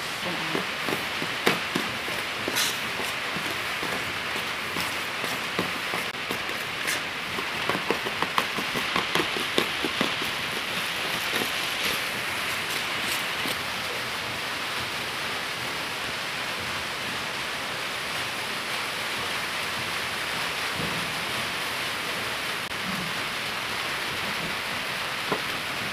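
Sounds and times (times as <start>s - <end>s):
steady hiss: 0.0s - 14.9s.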